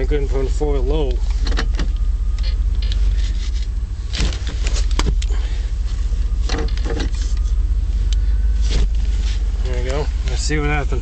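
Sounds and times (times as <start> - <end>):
gear shift clunks and clicks: 0.0 - 11.0
truck engine rumbling: 0.0 - 11.0.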